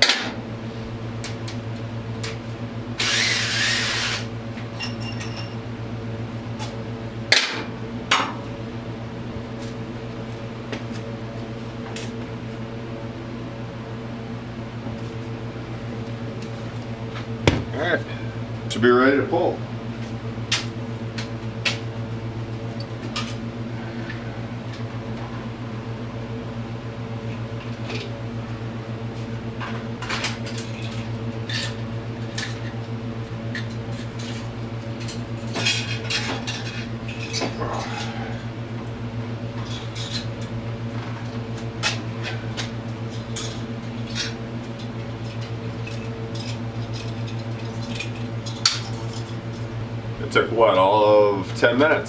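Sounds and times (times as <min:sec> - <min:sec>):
mechanical fan hum: 0:00.0 - 0:52.0.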